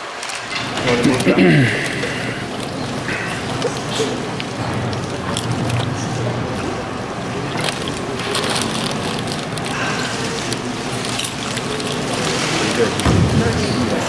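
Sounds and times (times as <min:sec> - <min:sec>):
auditorium noise: 0:00.0 - 0:14.0
scattered clicks and knocks: 0:07.5 - 0:14.0.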